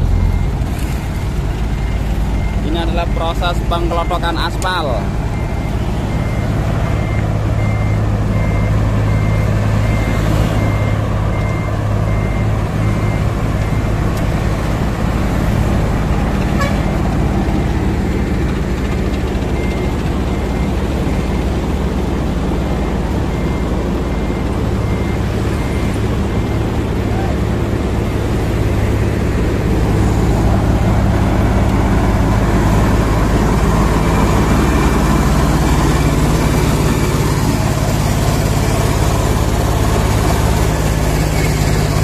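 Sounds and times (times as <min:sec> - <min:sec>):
short warning beeps: 0:00.0 - 0:14.0
diesel engine running under load: 0:00.0 - 0:42.0
cutting drum grinding road surface: 0:06.0 - 0:42.0.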